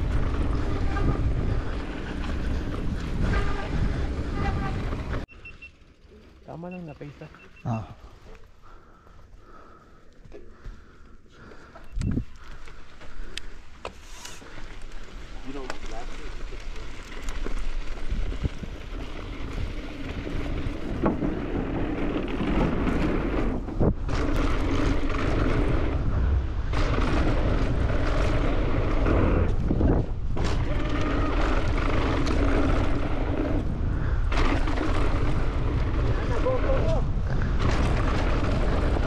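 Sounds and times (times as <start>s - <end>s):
wind rushing over microphone: 0.0s - 5.3s, 17.8s - 39.0s
bike tyres rattling on dirt: 0.0s - 7.6s, 8.2s - 39.0s.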